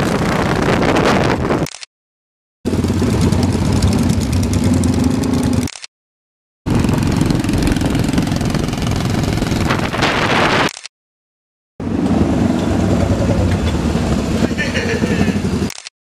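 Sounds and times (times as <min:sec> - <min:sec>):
motorcycle engines running: 0:02.7 - 0:05.7, 0:06.7 - 0:10.5, 0:11.8 - 0:15.7
road noise: 0:02.7 - 0:05.9, 0:06.7 - 0:10.9, 0:11.8 - 0:15.9.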